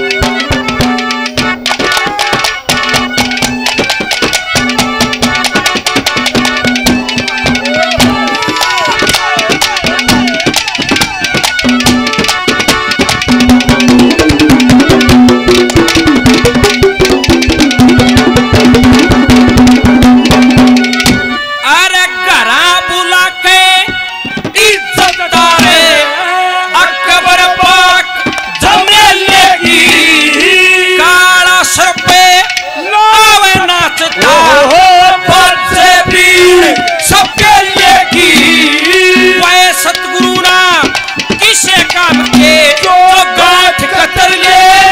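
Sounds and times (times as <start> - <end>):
fast hand drum rhythm: 0.0 - 21.4, 23.8 - 26.0, 28.1 - 32.6, 33.2 - 44.9
sliding melodic line: 0.0 - 21.6
man speaking into a microphone: 21.6 - 30.1, 30.7 - 44.9.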